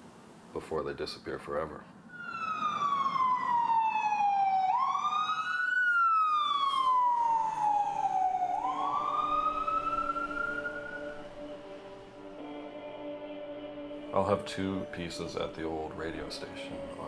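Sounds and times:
siren-like wailing tone: 2.1 - 13.9
low steady tones: 2.1 - 17.0.

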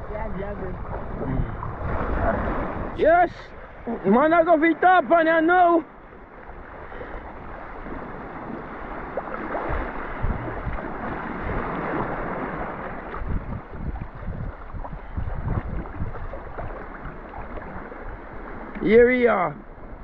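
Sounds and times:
wind thumping on microphone: 0.0 - 3.1, 7.4 - 18.7
water sloshing and splashing: 0.0 - 18.9.

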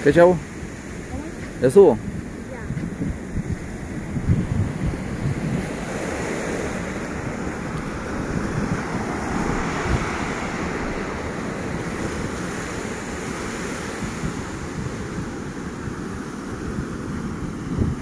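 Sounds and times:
ocean surf breaking on rocks: 0.0 - 18.0
wind buffeting microphone: 0.0 - 18.0.

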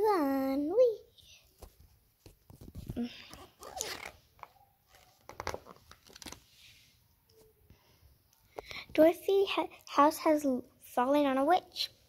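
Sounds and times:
book pages turning: 1.6 - 6.8.

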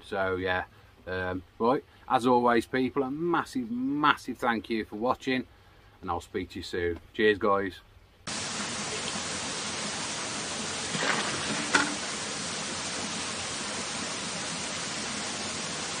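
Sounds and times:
water pouring from a spout: 8.3 - 16.0.

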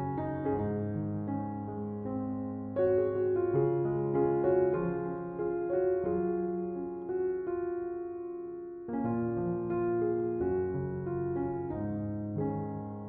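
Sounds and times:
soft slow piano music: 0.0 - 13.0.

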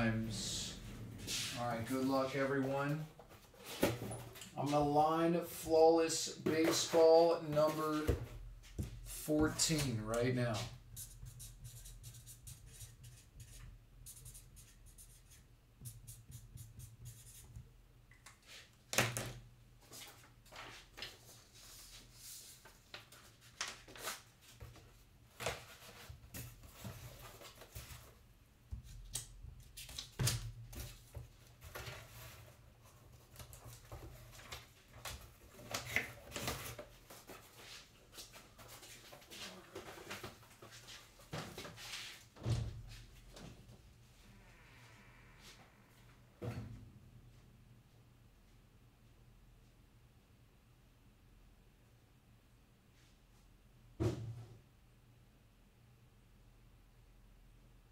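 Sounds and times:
low steady hum: 0.0 - 3.4.

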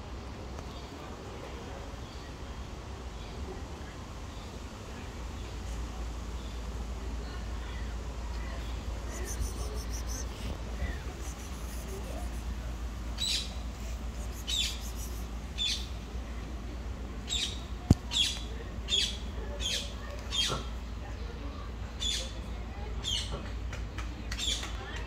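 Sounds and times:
bird chirping: 9.0 - 12.5, 13.2 - 15.9.

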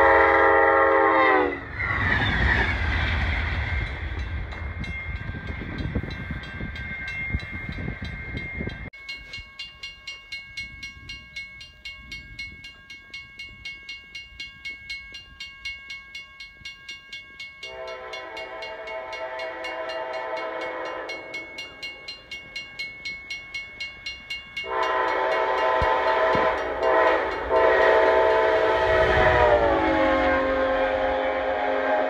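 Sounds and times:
locomotive horn blasts: 0.0 - 1.7, 17.6 - 21.4, 24.6 - 32.0
railroad crossing bell ringing: 0.0 - 1.7, 3.1 - 30.7
locomotive engine and wheels rumbling: 0.0 - 32.0.

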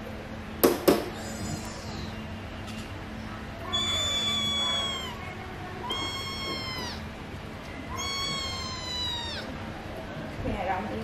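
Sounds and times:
kitten mewing: 3.6 - 7.1, 7.9 - 9.6.

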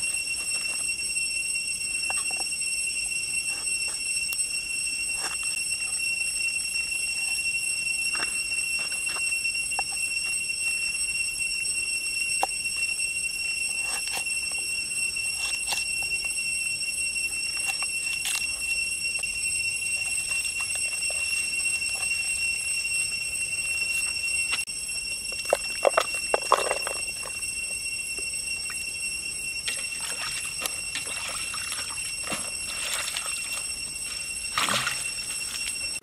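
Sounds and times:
forest insects droning: 0.0 - 36.0.

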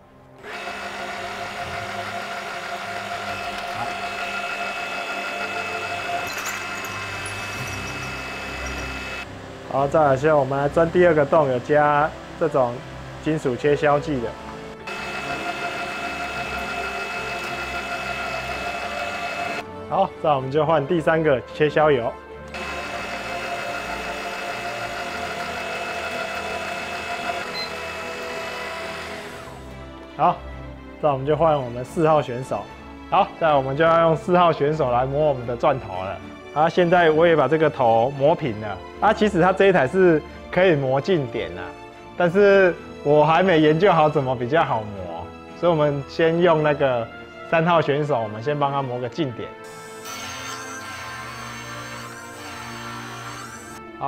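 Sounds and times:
drill cutting into metal: 0.4 - 9.3, 14.8 - 19.6, 22.5 - 29.8, 49.6 - 53.8
milling machine spindle whir: 0.4 - 19.6, 22.5 - 29.9, 49.6 - 53.8.

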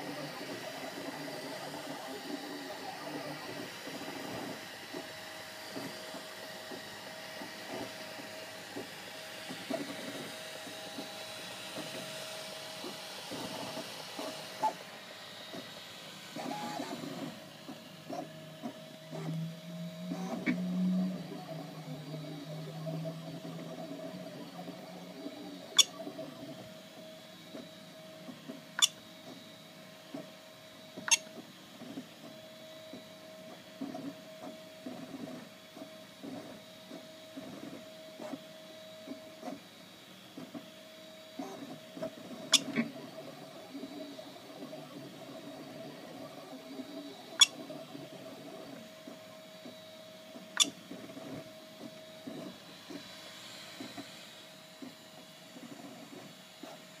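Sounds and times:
stepper motors whining: 0.0 - 29.4, 40.4 - 56.6.

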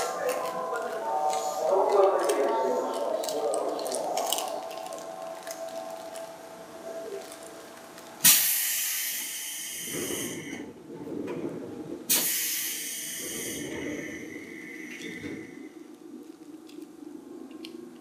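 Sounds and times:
low rumble: 0.0 - 8.3, 12.7 - 18.0
train air brake hissing: 8.2 - 10.6, 12.1 - 15.6.

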